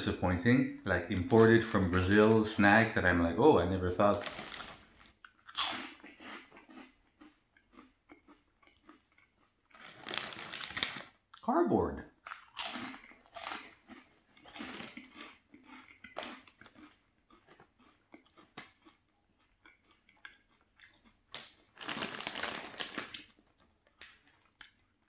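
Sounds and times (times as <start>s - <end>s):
plastic bag crinkling: 4.0s - 5.1s, 9.8s - 11.2s, 21.3s - 23.4s
crunching and chewing snack: 4.0s - 11.5s, 12.2s - 25.0s.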